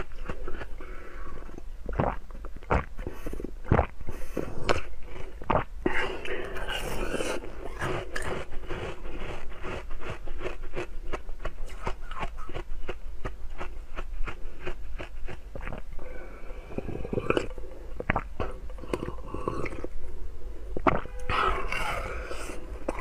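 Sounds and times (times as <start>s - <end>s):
ice crunching while chewed: 0.0s - 15.9s, 16.7s - 20.0s, 20.8s - 23.0s.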